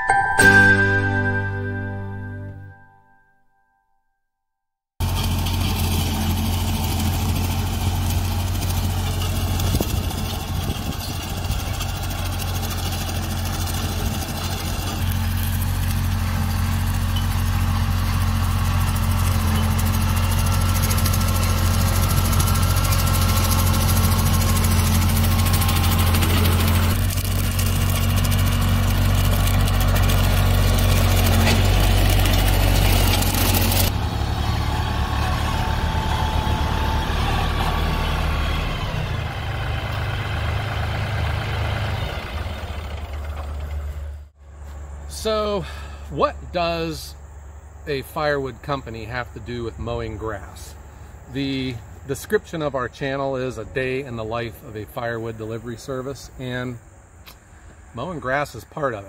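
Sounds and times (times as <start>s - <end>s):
rotary cutter cutting tall grass: 5.0s - 44.2s
diesel tractor engine running: 5.0s - 59.0s.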